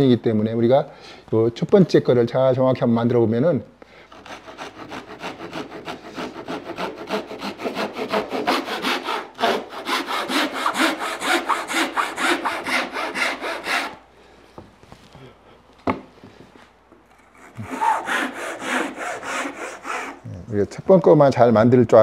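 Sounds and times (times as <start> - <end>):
pull saw cutting wood: 4.2 - 14.0, 17.1 - 20.2.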